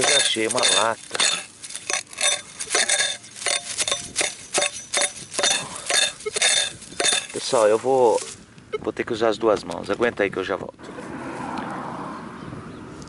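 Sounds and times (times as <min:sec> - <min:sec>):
hoe chopping into soil: 0:00.0 - 0:08.4.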